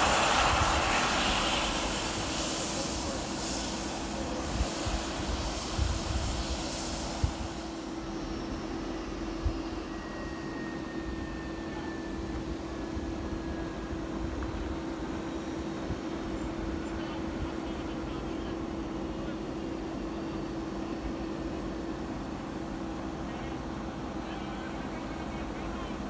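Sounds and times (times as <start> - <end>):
wind buffeting microphone: 0.0 - 7.7
jet engines droning: 0.0 - 26.0.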